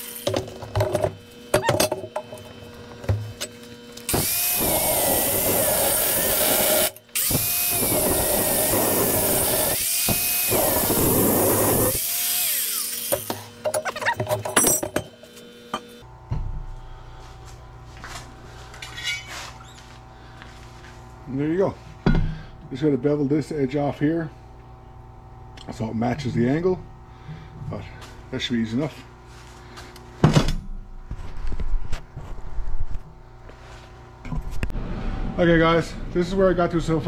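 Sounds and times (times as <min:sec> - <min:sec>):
angle grinder cutting steel: 0:04.1 - 0:14.1.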